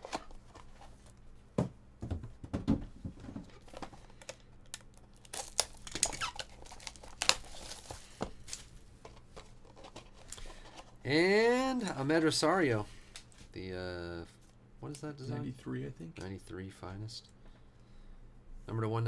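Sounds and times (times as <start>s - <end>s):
cardboard boxes knocking: 1.6s - 3.5s
plastic wrap crinkling and tearing: 3.7s - 8.7s.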